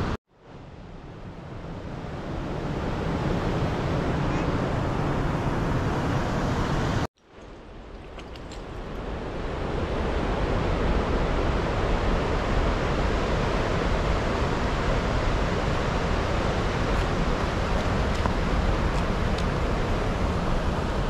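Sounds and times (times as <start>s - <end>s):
wind buffeting microphone: 7.7s - 21.0s.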